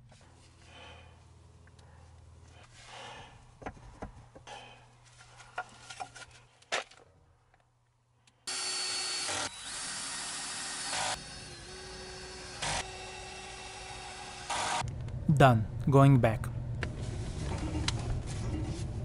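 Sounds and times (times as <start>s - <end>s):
power drill driving screws: 8.5s - 14.8s.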